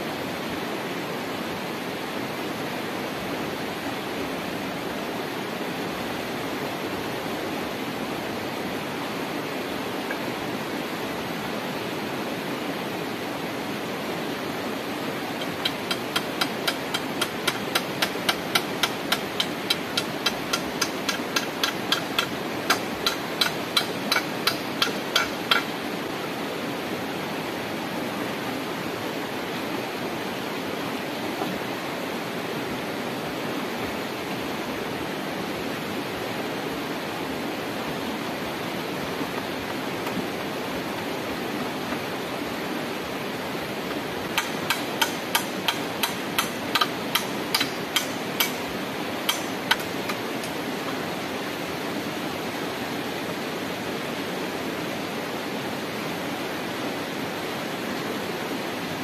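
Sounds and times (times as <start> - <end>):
stream rushing: 0.0 - 59.0
hammer striking wood: 15.4 - 25.7, 44.4 - 48.6, 49.3 - 50.6.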